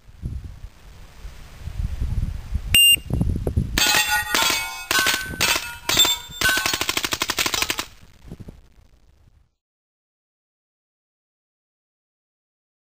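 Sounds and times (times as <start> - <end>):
loud beep: 2.8 - 3.1
steel target plates ringing: 3.8 - 7.7
submachine gun firing bursts: 4.4 - 8.0.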